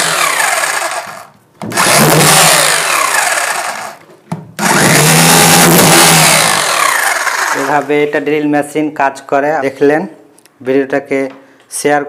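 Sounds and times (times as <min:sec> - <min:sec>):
hammer drill chiselling brick: 0:00.0 - 0:04.0, 0:04.6 - 0:07.9.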